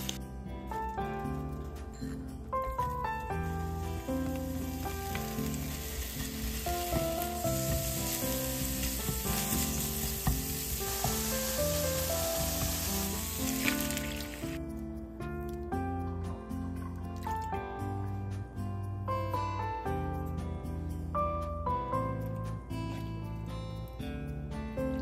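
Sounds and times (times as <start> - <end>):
background music: 0.0 - 25.0
meat sizzling in a frying pan: 3.4 - 14.6.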